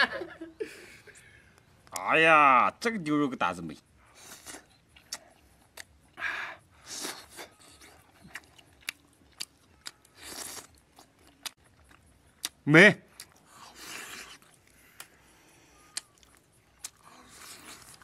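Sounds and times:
person chewing: 0:04.1 - 0:06.2, 0:06.8 - 0:18.0.

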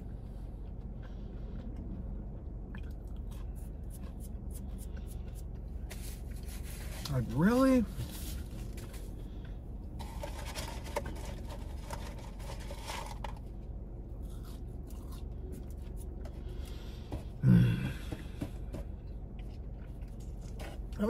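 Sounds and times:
steady low hum: 0:00.0 - 0:21.0
handling noises scraping and rustling: 0:03.9 - 0:13.7, 0:18.3 - 0:21.0
person humming or grunting: 0:17.4 - 0:18.1.

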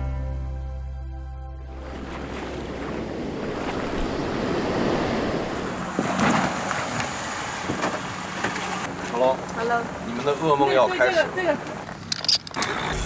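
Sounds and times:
wind on microphone: 0:01.7 - 0:07.8
sea waves washing: 0:01.7 - 0:11.8.

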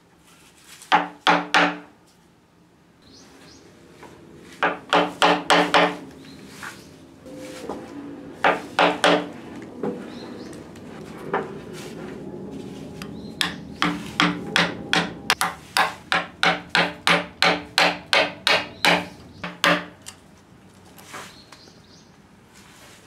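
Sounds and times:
hammer striking chisel: 0:00.9 - 0:01.9, 0:04.6 - 0:06.0, 0:08.5 - 0:09.3, 0:13.4 - 0:20.0.

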